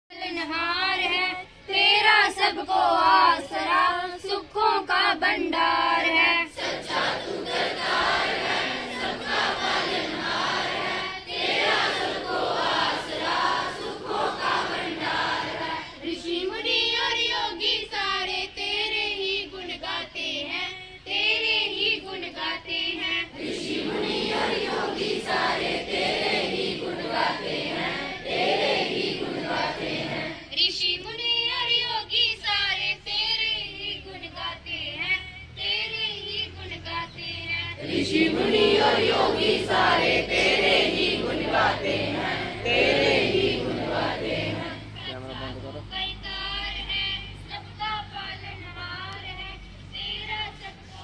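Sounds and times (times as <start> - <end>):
children singing in unison: 0.1 - 30.5, 36.5 - 45.2.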